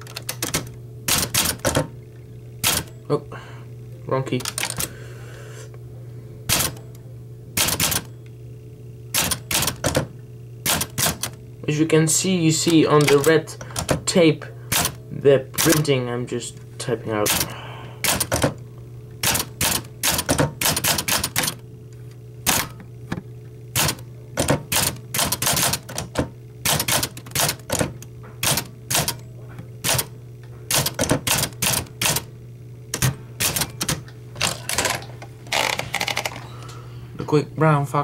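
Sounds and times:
typewriter keys clacking: 0.0 - 1.8, 7.6 - 8.1, 9.2 - 10.0, 10.7 - 11.3, 12.6 - 14.0, 18.1 - 18.5, 23.8 - 29.2, 30.7 - 32.2.

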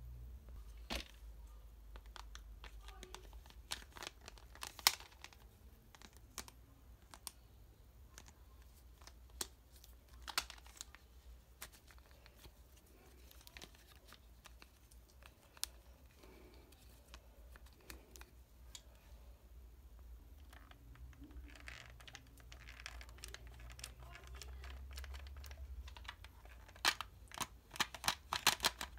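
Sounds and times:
plastic toy belt clicks: 24.6 - 28.9.

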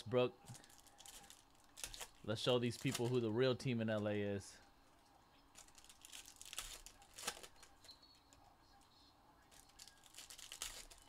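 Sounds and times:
card pack wrappers crinkling and tearing: 0.5 - 3.3, 5.5 - 7.7, 9.5 - 11.0.

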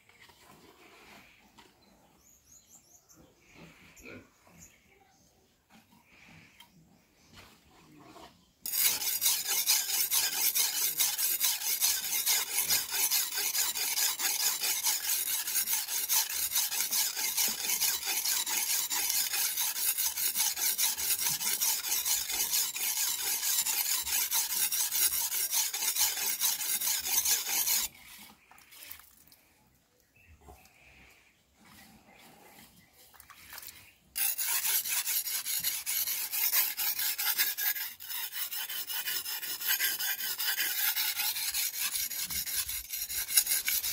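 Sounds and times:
knife scraping on whetstone: 8.0 - 29.1, 33.5 - 43.9.

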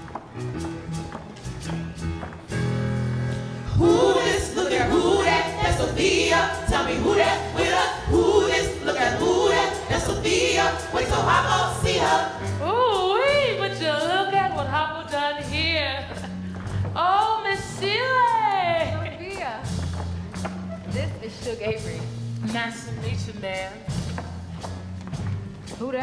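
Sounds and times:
instrumental accompaniment: 0.0 - 26.0
voices singing together: 3.7 - 14.8
woman singing with vibrato: 3.8 - 16.2.

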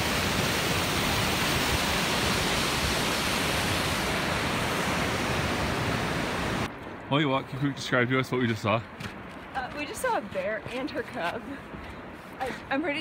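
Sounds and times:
waterfall rushing: 0.0 - 6.7.

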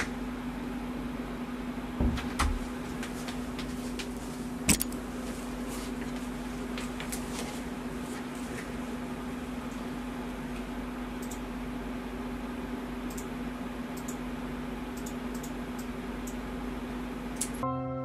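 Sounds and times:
low electrical hum: 0.0 - 17.8
computer mouse clicks: 11.2 - 11.4, 13.1 - 13.3, 14.0 - 14.2, 15.0 - 16.4.

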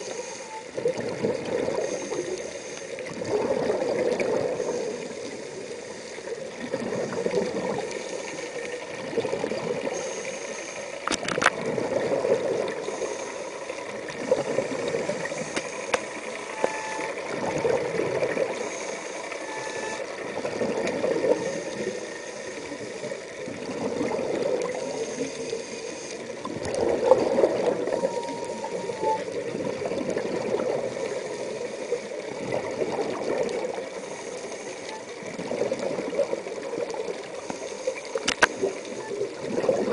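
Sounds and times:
scuba regulator bubbling exhalations: 3.1 - 4.8, 26.4 - 31.0, 38.2 - 39.9.

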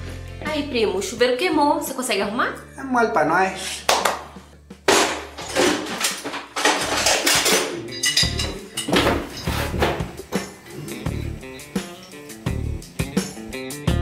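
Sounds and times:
metal tools clanking: 4.9 - 10.1.

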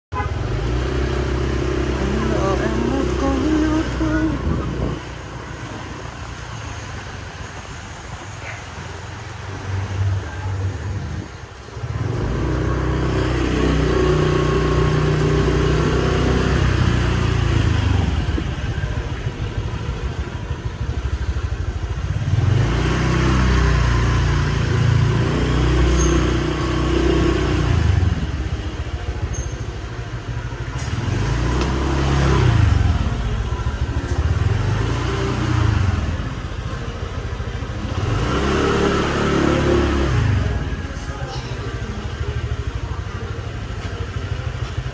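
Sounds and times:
air and road noise: 0.1 - 44.9
motorbike engine revving: 11.8 - 41.0.

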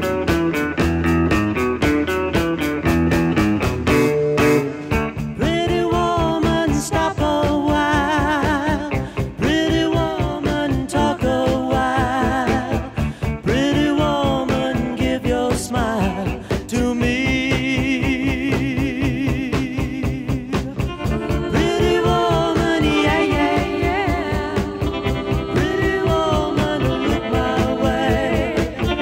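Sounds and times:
rock band playing: 0.0 - 11.2, 18.5 - 29.0
steady drum beat: 0.0 - 29.0
man singing: 5.4 - 29.0.

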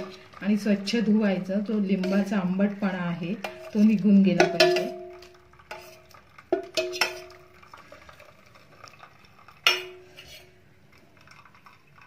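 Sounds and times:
steel bowl knocking and clanging: 0.0 - 1.0, 1.6 - 8.2, 8.8 - 10.5.

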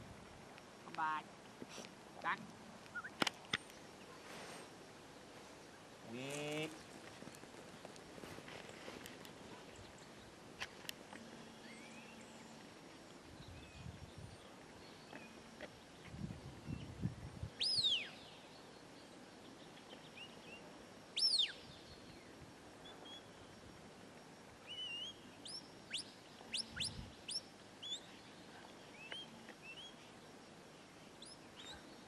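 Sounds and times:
small bird chirps: 2.9 - 4.2, 17.6 - 18.4, 21.2 - 22.1, 24.7 - 30.1, 31.2 - 32.0.

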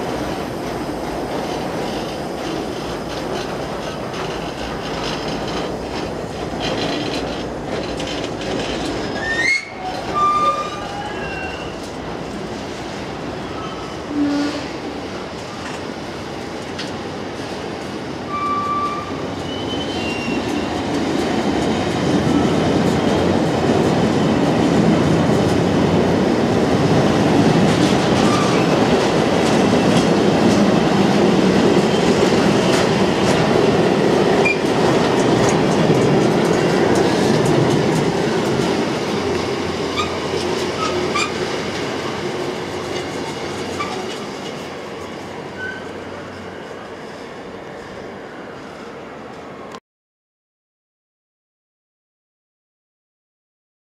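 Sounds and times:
train wheels rumbling on rail: 0.0 - 49.8
clicks over rail joints: 2.4 - 9.2.

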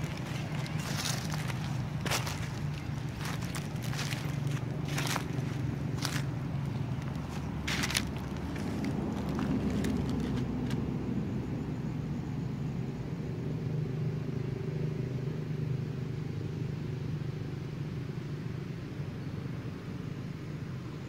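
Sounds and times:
engine running: 0.0 - 20.8.

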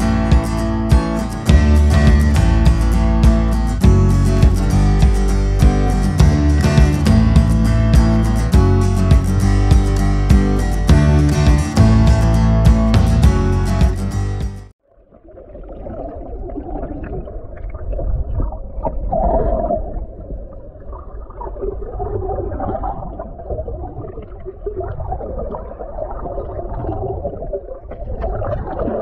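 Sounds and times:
muffled underwater rushing water: 14.8 - 29.0.

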